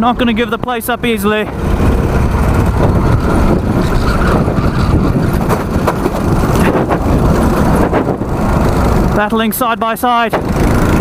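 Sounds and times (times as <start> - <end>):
go-kart engine running: 0.0 - 11.0.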